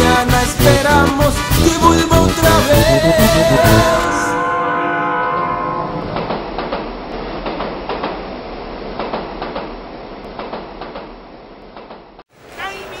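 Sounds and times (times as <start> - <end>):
train rumbling in tunnel: 3.0 - 13.0
wheels clattering on rails: 6.0 - 12.2.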